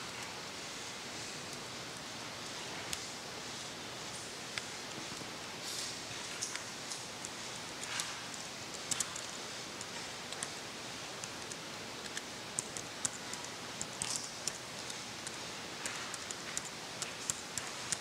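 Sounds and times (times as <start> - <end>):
room noise hiss: 0.0 - 18.0
laptop keyboard typing: 11.2 - 18.0.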